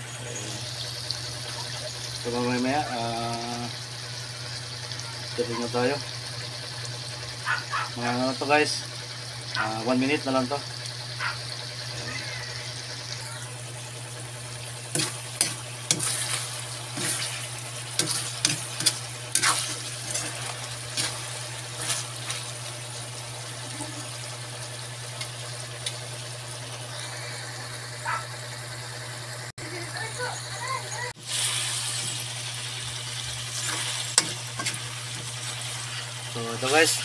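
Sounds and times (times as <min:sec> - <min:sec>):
food sizzling in a pan: 0:00.0 - 0:28.3, 0:29.6 - 0:37.0
metal spatula scraping a pan: 0:14.9 - 0:22.5, 0:33.5 - 0:37.0.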